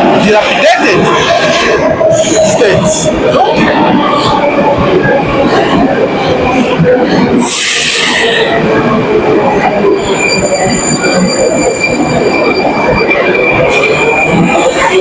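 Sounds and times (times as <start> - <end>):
subway train rumbling on rails: 0.0 - 15.0
train wheels squealing: 9.8 - 15.0.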